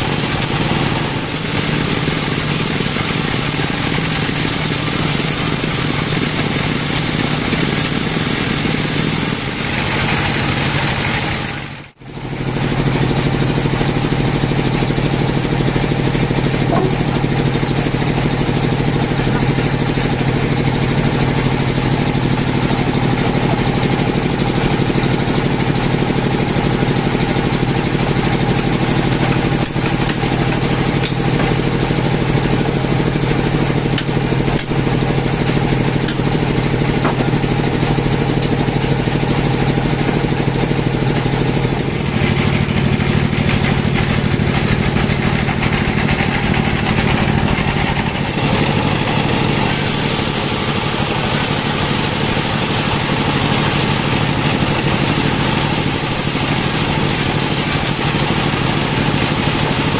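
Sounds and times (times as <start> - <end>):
band sawmill humming: 0.0 - 11.8, 27.7 - 59.9.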